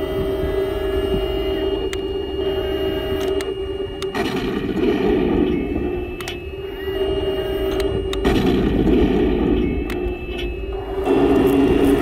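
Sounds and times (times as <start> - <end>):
simulated gun blast: 4.1 - 6.2, 8.2 - 10.1
sharp clicks: 6.2 - 6.4.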